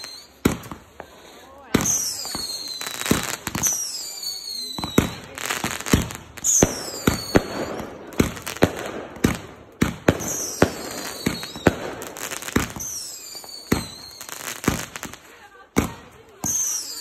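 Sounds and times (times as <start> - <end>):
falling firework whistles: 0.0 - 0.8, 1.7 - 7.9, 10.1 - 15.2
firework bangs and pops: 0.0 - 17.0.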